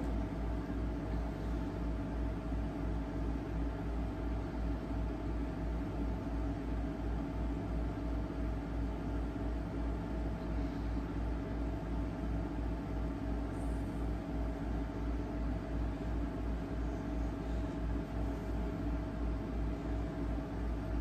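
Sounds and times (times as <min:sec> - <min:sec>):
low mechanical hum: 0:00.0 - 0:21.0.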